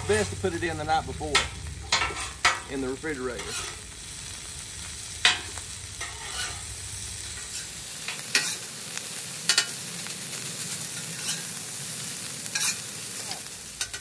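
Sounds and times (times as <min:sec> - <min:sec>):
rice sizzling on a griddle: 0:00.0 - 0:14.0
metal spatula clacking on griddle: 0:01.3 - 0:02.8, 0:03.4 - 0:03.8, 0:05.2 - 0:06.7, 0:07.4 - 0:08.7, 0:09.4 - 0:09.8, 0:11.0 - 0:11.5, 0:12.5 - 0:14.0.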